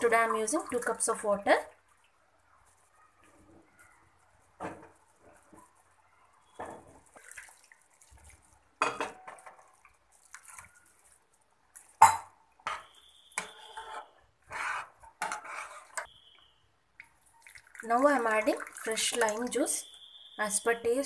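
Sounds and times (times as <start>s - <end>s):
metal ladle scraping metal pot: 12.6s - 16.1s.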